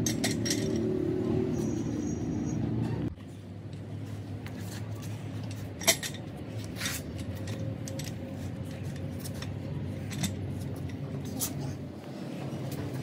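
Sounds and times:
metal tools clinking and scraping: 0.0s - 3.1s, 5.0s - 11.8s.

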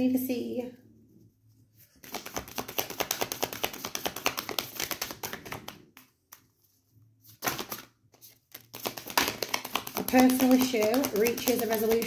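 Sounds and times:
cards being shuffled: 1.9s - 6.5s, 7.2s - 12.0s.

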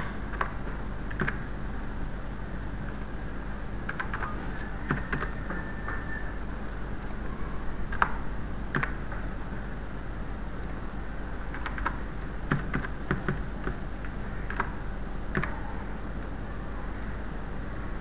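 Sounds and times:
steady low hum: 0.0s - 18.0s
computer keyboard typing: 0.3s - 1.4s, 3.8s - 4.3s, 4.9s - 5.4s, 7.9s - 9.0s, 11.5s - 13.8s, 14.4s - 15.6s.

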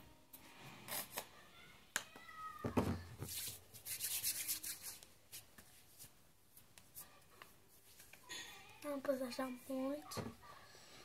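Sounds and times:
palms rubbing together: 3.2s - 8.2s.

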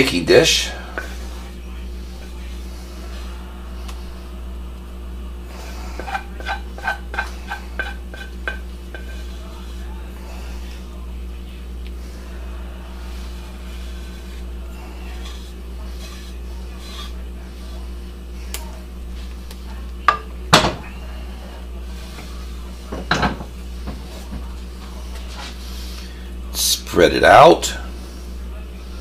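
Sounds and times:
steady low hum: 0.0s - 29.0s
spoon scraping a pot: 5.6s - 9.9s, 13.1s - 18.0s.

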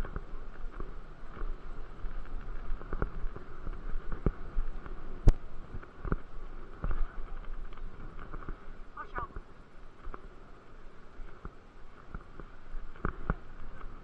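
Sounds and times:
bike knocking and rattling: 0.0s - 8.8s, 11.2s - 14.0s
bicycle tyres rolling on asphalt: 0.0s - 14.0s.

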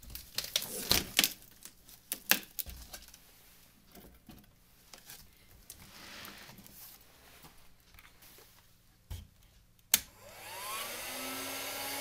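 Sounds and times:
rustle of plastic or cardboard: 0.0s - 8.8s.

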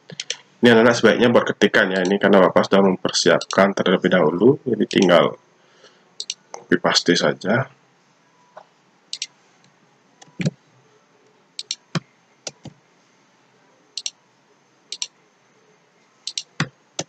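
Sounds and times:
mouse and keyboard clicks: 6.2s - 6.4s, 11.6s - 12.8s, 14.9s - 15.1s, 16.3s - 16.7s.

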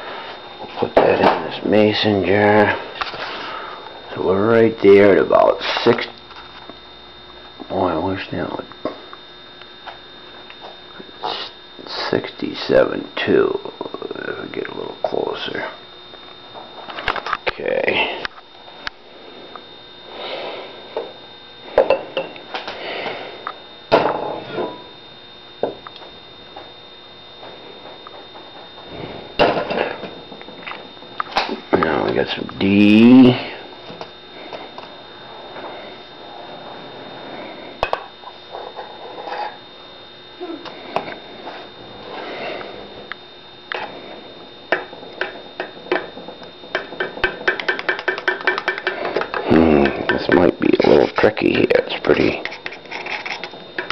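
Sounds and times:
cups and jug knocking on stovetop: 46.7s - 50.4s.

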